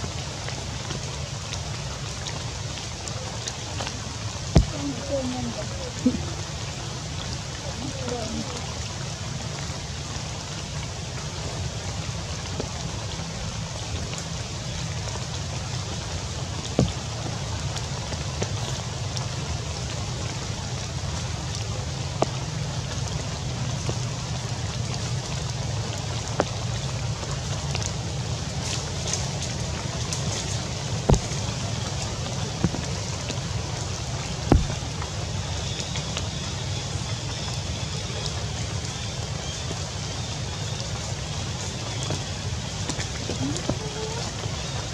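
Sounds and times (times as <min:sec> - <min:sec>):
rain hissing on foliage: 0:00.0 - 0:44.9
sharp knocks: 0:34.5 - 0:34.8.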